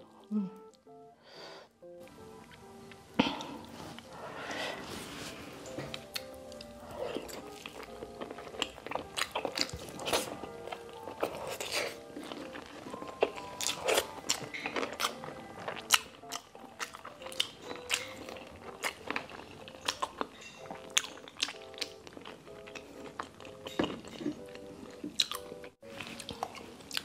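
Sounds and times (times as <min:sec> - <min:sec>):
soft background music: 0:00.0 - 0:27.0
chewing and biting food: 0:05.9 - 0:27.0.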